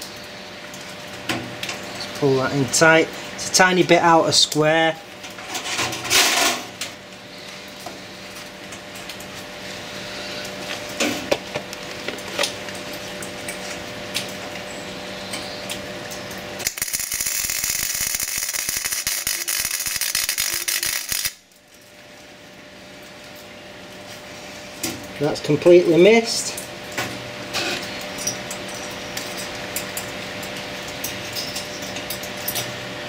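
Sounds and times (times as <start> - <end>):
steady hum: 0.0 - 33.0
welding arc crackling: 15.6 - 22.0.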